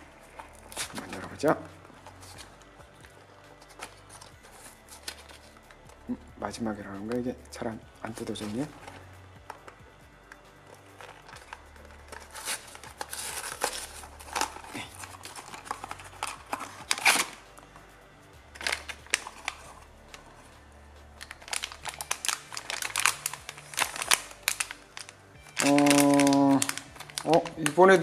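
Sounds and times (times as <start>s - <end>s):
foil pouch crinkling: 0.0s - 6.2s, 10.7s - 17.4s, 18.5s - 20.4s, 21.2s - 28.0s
cardboard box tearing: 12.1s - 17.4s.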